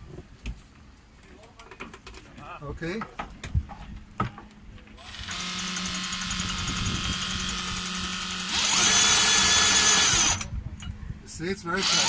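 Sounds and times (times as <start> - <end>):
drill whining and ticking: 5.0 - 10.5, 11.8 - 12.0.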